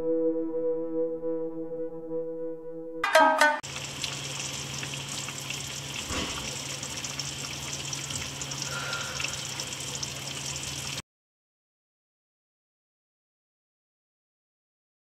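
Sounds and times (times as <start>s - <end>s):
stew sizzling and bubbling: 3.6s - 11.0s.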